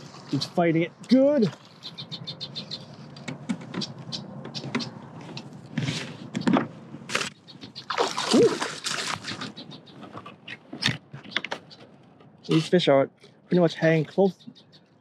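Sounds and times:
fish splashing at water surface: 7.8s - 9.5s.

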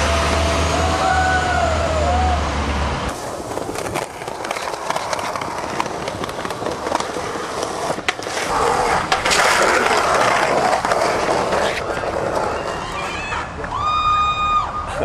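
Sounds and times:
skateboard clacks: 3.1s - 13.8s
skateboard rolling on pavement: 3.1s - 14.5s.

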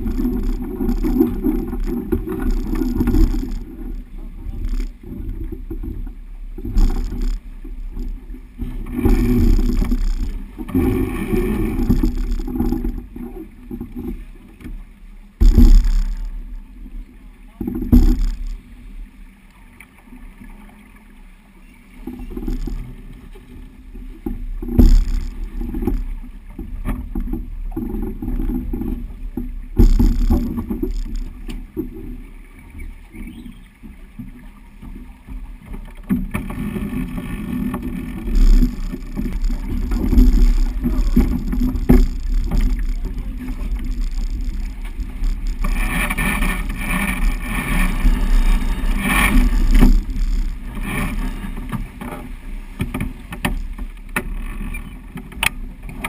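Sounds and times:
water rushing past hull: 0.0s - 56.0s
sharp thumps: 15.4s - 16.4s, 17.8s - 18.6s, 24.6s - 26.1s, 29.8s - 31.6s, 36.1s - 51.8s.

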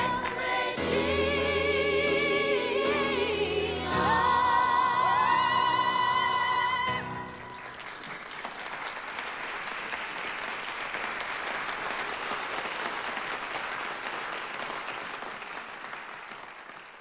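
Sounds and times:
congregation applauding: 4.8s - 17.0s.

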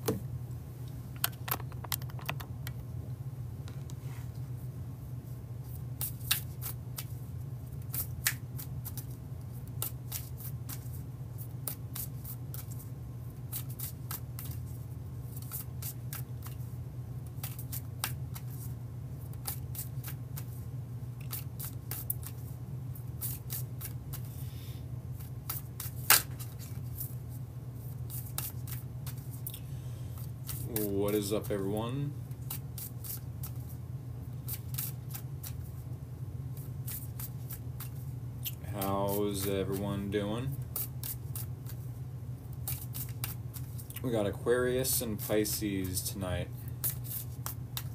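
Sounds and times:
steady low hum: 0.0s - 47.9s
playing cards being shuffled: 1.2s - 2.6s, 42.6s - 43.9s, 46.8s - 47.9s.

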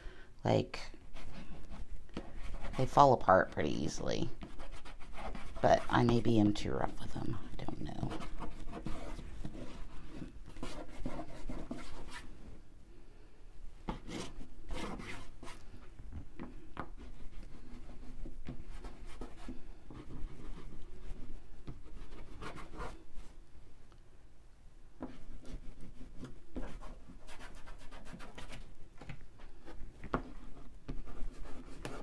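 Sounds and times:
oil pastels scratching on paper: 1.1s - 12.3s, 13.9s - 15.7s, 16.8s - 23.0s, 25.0s - 28.7s, 29.4s - 32.0s.

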